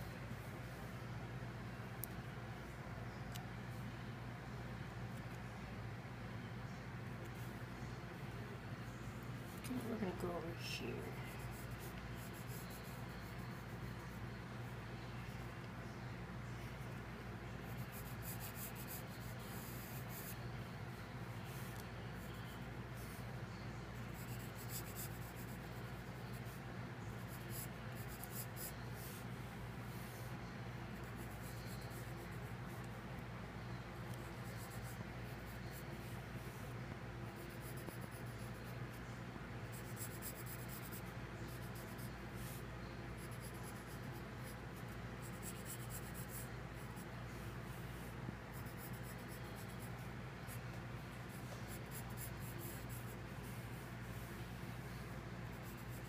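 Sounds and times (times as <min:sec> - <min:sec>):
pencil scratching on paper: 0:09.5 - 0:14.3, 0:17.6 - 0:23.3, 0:23.9 - 0:29.3, 0:30.9 - 0:32.9, 0:34.0 - 0:39.0, 0:39.6 - 0:47.1, 0:48.0 - 0:54.3, 0:54.9 - 0:56.0.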